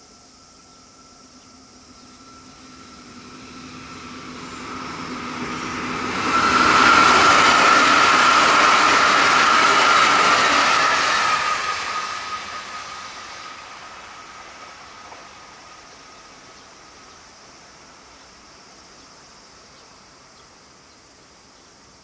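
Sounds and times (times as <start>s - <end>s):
steady high tone: 0.0s - 14.5s
electric train passing: 0.0s - 22.0s.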